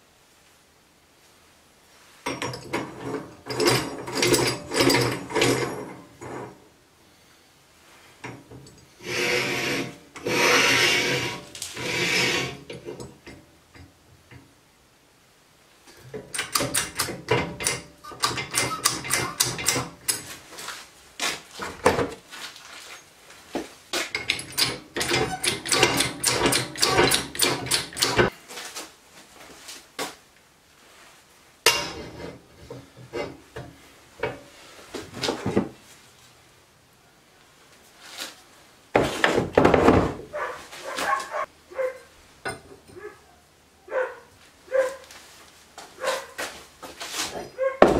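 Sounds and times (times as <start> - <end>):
metal scraping and rubbing: 2.5 - 6.6, 8.5 - 13.3, 16.3 - 21.4, 24.1 - 28.3, 31.7 - 33.4
metal clicks and knocks: 15.9 - 20.3, 24.1 - 28.3.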